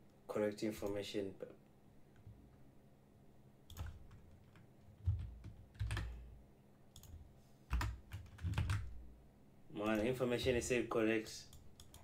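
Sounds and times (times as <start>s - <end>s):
keyboard keystrokes: 3.7s - 6.2s, 7.0s - 8.9s, 11.5s - 12.0s.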